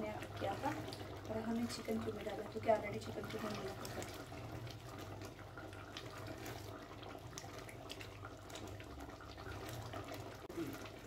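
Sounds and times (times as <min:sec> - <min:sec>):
spatula stirring thick gravy: 0:00.8 - 0:11.0.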